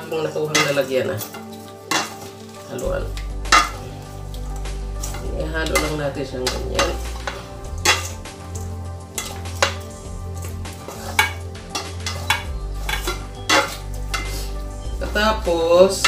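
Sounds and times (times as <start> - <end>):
spoon clinking against metal bowl: 0.4 - 2.4, 5.0 - 15.1.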